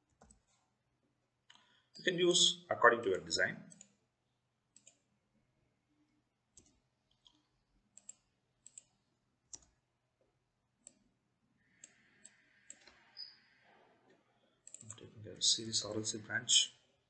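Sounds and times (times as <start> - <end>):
faint computer mouse clicks: 4.8 - 5.0, 6.6 - 9.8, 11.8 - 13.4.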